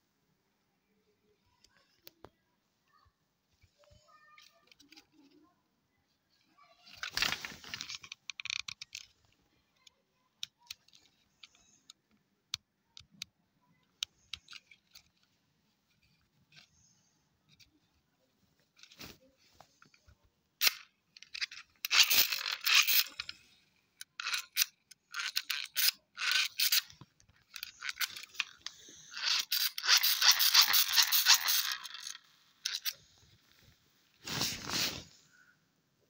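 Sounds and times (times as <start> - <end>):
dynamo flashlight gear whirring: 27.5 - 33.0.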